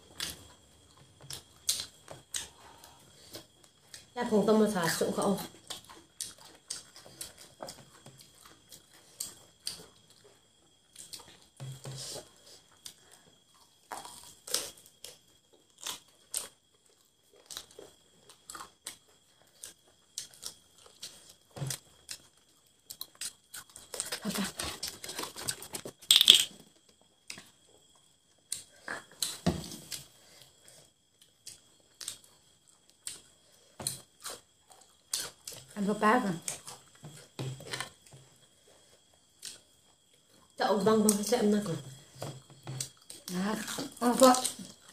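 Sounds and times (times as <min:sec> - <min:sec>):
person chewing: 0:05.6 - 0:11.4, 0:12.1 - 0:26.5, 0:27.2 - 0:35.7.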